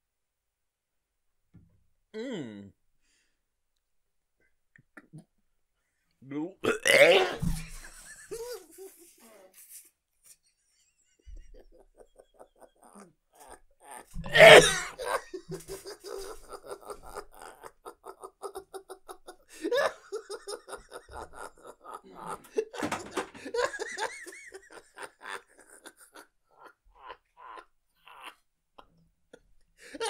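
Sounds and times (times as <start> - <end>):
loud cough: 6.7 - 7.6, 13.9 - 15.2
people laughing hard: 7.4 - 9.2, 10.7 - 30.0.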